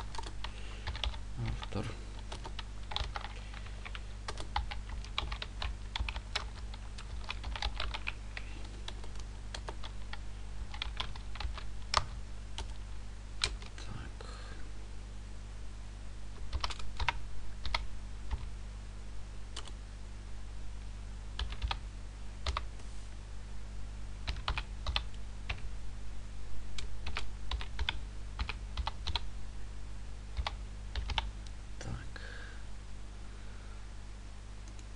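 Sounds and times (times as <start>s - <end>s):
typing on computer keyboard: 0.0s - 1.6s, 2.2s - 8.2s, 10.7s - 12.8s, 16.4s - 18.5s, 21.4s - 21.8s, 24.3s - 25.6s, 30.4s - 31.3s
steady low hum: 0.0s - 34.9s.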